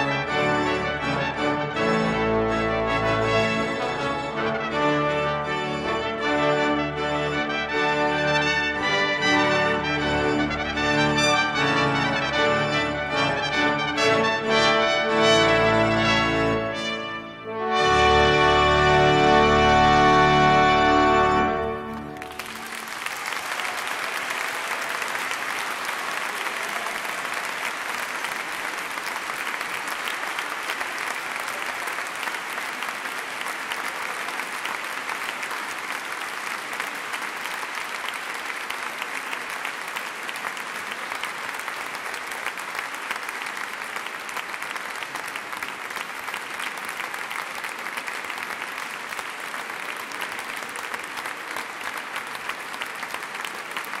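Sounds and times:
brass and organ chord: 0:00.0 - 0:22.9
audience applauding: 0:06.7 - 0:54.0.

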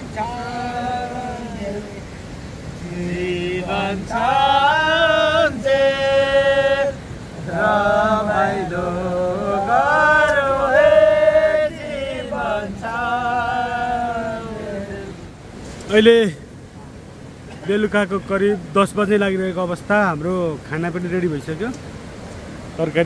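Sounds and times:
man singing unaccompanied: 0:00.0 - 0:15.3.

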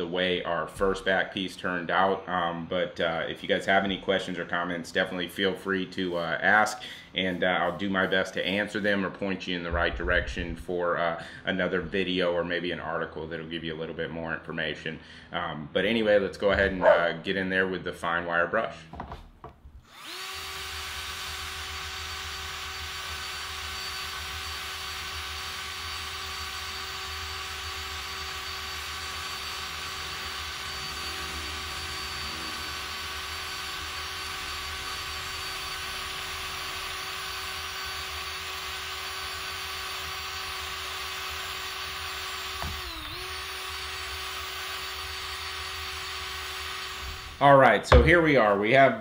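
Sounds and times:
drill motor whine: 0:19.8 - 0:48.2.

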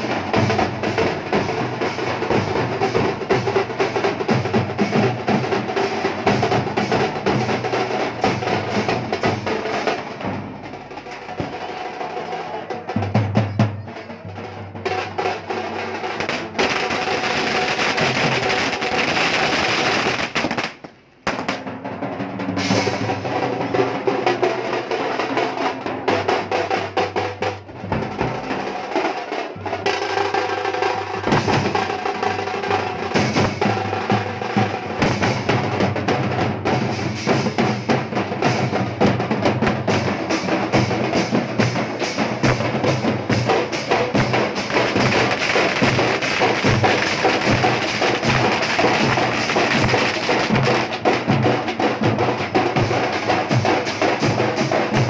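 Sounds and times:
street drum band playing: 0:00.0 - 0:55.0.

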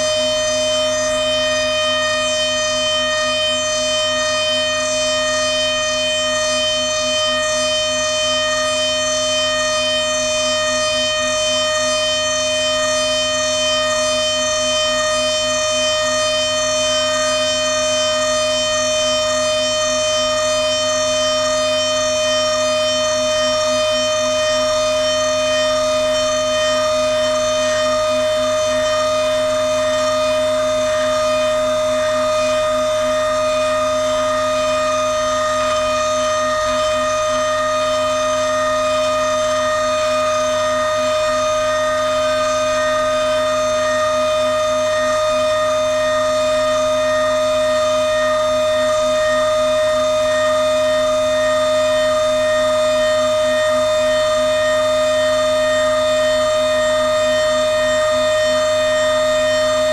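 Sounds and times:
milling spindle whining: 0:19.8 - 0:59.9.

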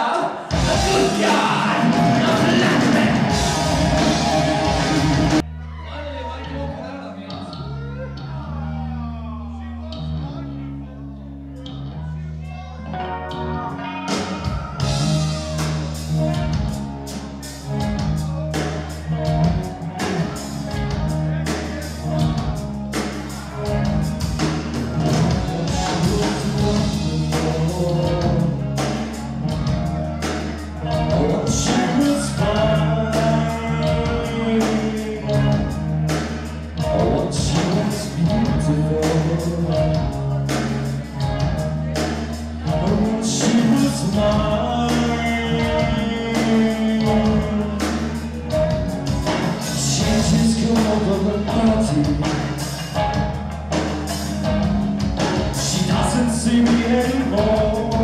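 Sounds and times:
heavy metal band playing: 0:00.0 - 0:10.5, 0:11.7 - 0:58.0
drum and cymbal hits: 0:00.5 - 0:05.4
repeating bass line: 0:00.5 - 0:05.7, 0:13.2 - 0:58.0.

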